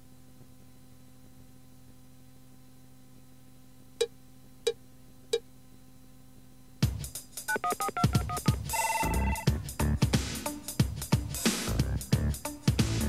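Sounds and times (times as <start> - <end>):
faint tape hum: 0.0 - 6.8, 7.5 - 9.5
short cue beeps: 7.5 - 9.5
electronic instrumental track: 7.5 - 13.0.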